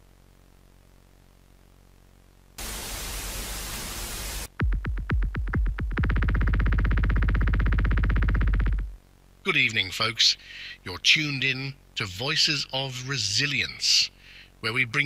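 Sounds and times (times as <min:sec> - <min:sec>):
low buzzing tone: 0:00.0 - 0:09.8
radio static burst: 0:02.6 - 0:04.5.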